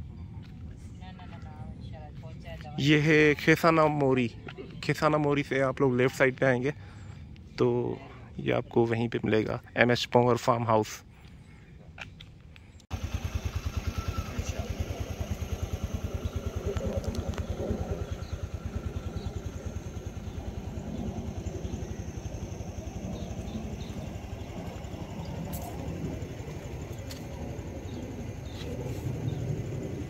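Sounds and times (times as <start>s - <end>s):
engine running with low thumping: 12.6s - 30.0s.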